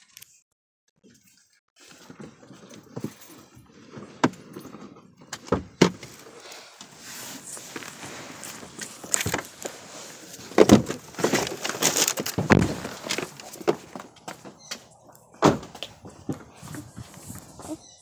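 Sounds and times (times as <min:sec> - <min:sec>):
rustling: 0:06.0 - 0:18.0
knocks and bumps: 0:10.4 - 0:17.8.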